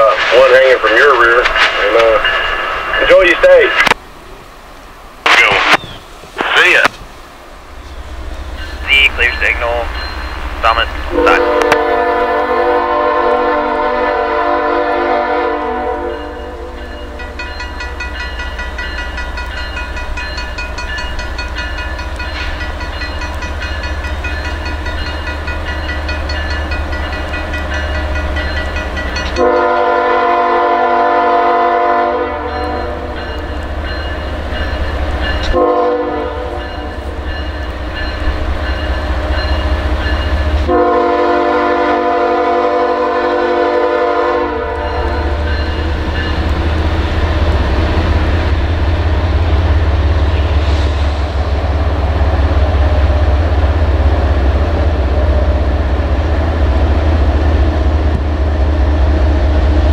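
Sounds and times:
locomotive engine rumble: 0:00.0 - 0:59.9
locomotive air horn blasts: 0:11.1 - 0:16.7, 0:29.4 - 0:33.1, 0:35.5 - 0:36.7, 0:40.6 - 0:45.3.

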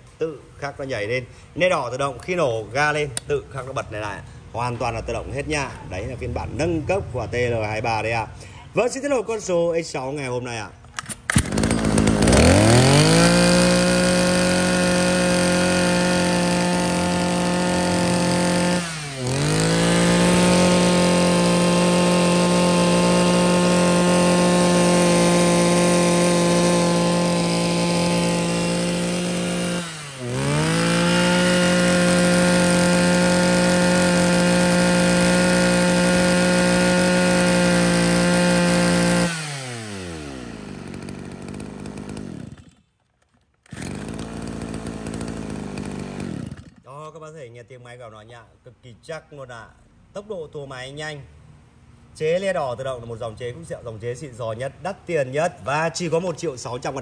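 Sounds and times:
brush cutter engine revving: 0:10.9 - 0:46.9.

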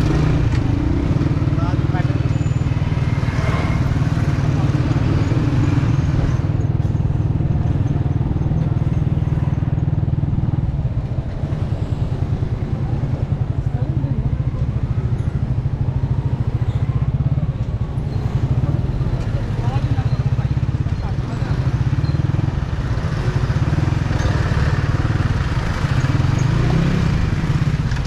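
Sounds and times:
motorcycle engine running: 0:00.0 - 0:28.0
street traffic: 0:00.0 - 0:28.0.

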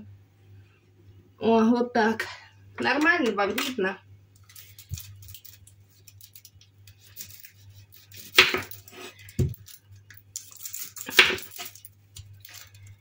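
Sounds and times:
kitchen clatter: 0:08.4 - 0:13.0.

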